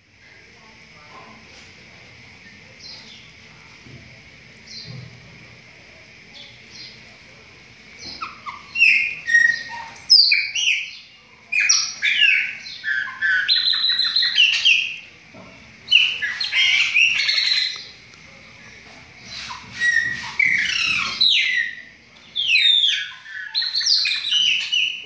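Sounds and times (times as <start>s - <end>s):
blackbird song: 4.6s - 5.1s, 8.0s - 15.1s, 15.8s - 18.0s, 19.2s - 25.0s.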